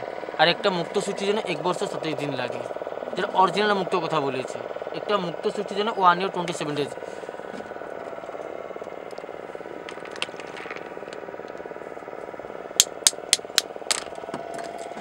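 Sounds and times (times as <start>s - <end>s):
steady low hum: 0.0s - 15.0s
oyster shells clicking together: 9.1s - 11.2s, 12.8s - 14.9s.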